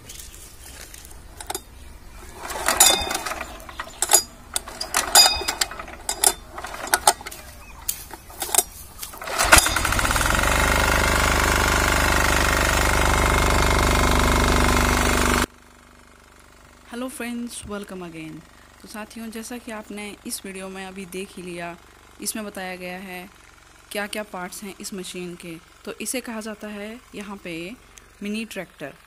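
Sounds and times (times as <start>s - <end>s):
diesel engine running: 0.0s - 29.0s
clicks and knocks: 0.7s - 10.3s.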